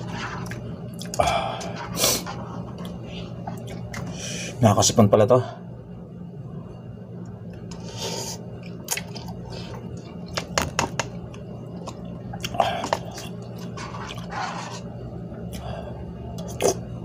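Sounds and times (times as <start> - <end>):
person chewing and slurping noodles: 0.0 - 4.2, 11.8 - 14.9.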